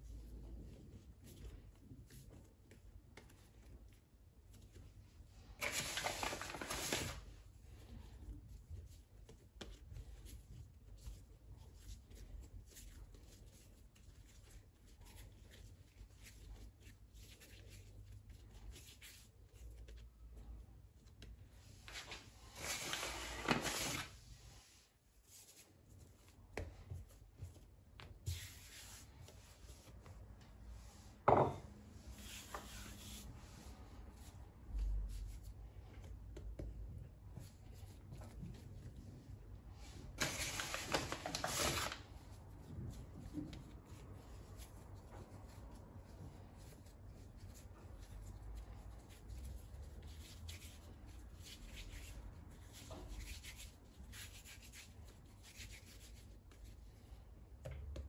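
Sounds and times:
hands handling things on worktop: 0:21.0 - 0:34.3, 0:39.8 - 0:42.0.

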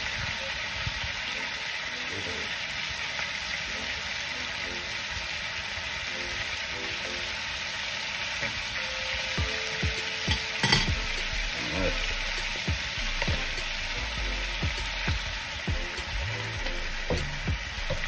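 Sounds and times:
scallops sizzling in pan: 0:00.0 - 0:18.0
metal tongs clicking against pan: 0:10.3 - 0:10.9.

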